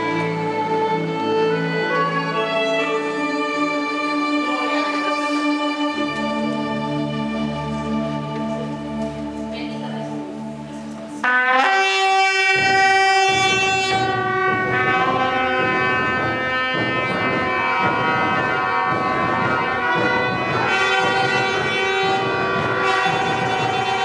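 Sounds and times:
trumpets and horns blowing: 11.2 - 24.0.

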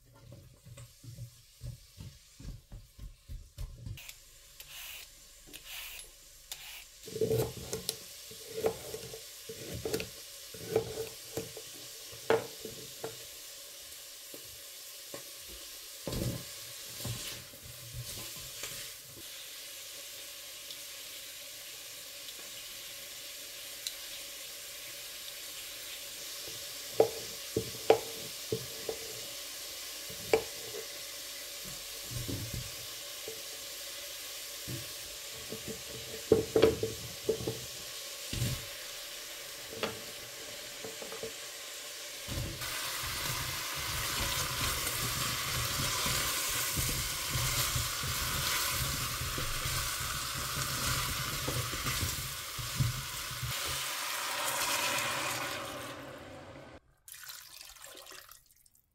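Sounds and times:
vegetables sizzling in oil: 3.9 - 56.4
spatula stirring in pot: 6.6 - 13.2, 42.6 - 53.9.

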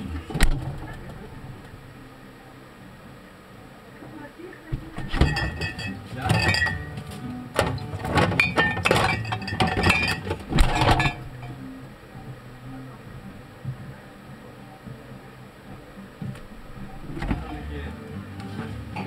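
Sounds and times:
fridge door shutting: 0.1 - 1.7, 7.6 - 11.4, 17.0 - 17.5
glass bottles clinking: 5.0 - 11.6.

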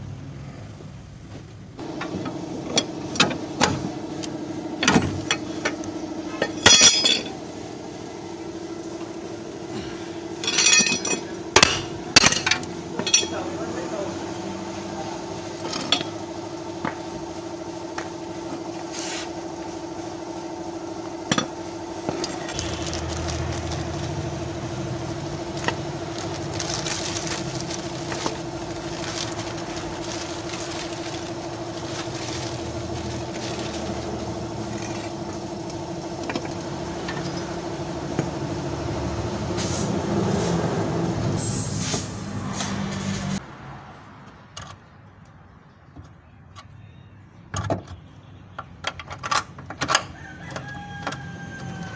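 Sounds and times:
steady mechanical hum: 0.0 - 43.4, 44.6 - 51.9
plastic wrapping crinkling: 22.2 - 24.2, 25.5 - 35.1.

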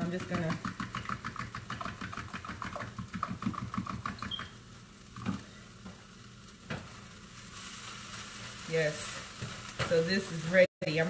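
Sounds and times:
fork whisking eggs in bowl: 0.0 - 4.4.

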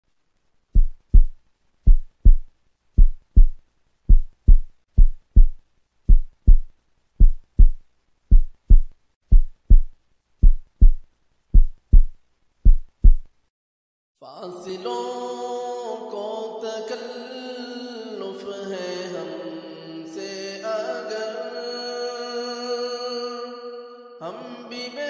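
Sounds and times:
heartbeat thumps: 0.8 - 13.3.

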